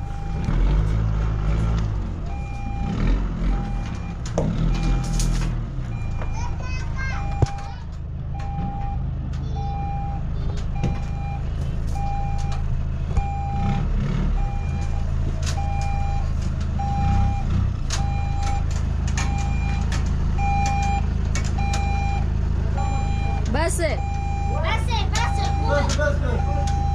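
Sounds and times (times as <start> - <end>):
reversing alarm beeps: 0.0 - 0.7, 2.3 - 5.4, 7.2 - 7.7, 8.4 - 9.0, 9.6 - 10.2, 10.8 - 11.4, 12.0 - 12.6, 13.2 - 13.8, 14.4 - 15.0, 15.6 - 16.2, 16.8 - 18.6, 19.2 - 19.8, 20.4 - 21.0, 21.6 - 22.2, 22.8 - 26.9
truck engine running low: 0.0 - 26.9.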